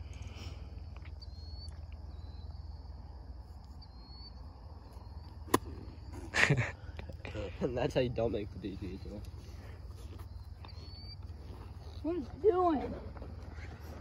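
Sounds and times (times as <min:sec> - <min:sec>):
insects chirring: 0:00.0 - 0:14.0
golf club striking ball: 0:05.5 - 0:05.8.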